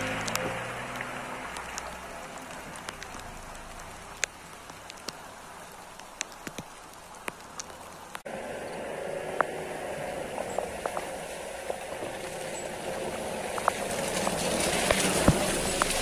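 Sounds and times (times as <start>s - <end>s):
car engine pulling away: 0.0s - 2.8s, 8.3s - 16.0s
light rain hissing: 0.0s - 16.0s
raindrop ticks: 0.0s - 16.0s.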